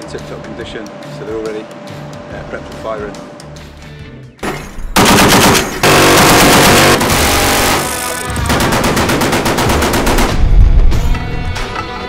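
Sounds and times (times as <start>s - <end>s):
background music: 0.0s - 12.0s
heavy machine gun firing bursts: 5.0s - 10.6s.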